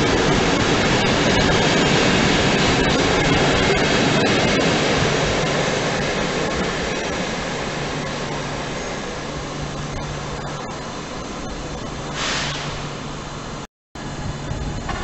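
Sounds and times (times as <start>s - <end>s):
station background noise: 0.0s - 15.0s
train coaches rumbling on track: 0.0s - 15.0s
short hiss: 12.1s - 13.0s.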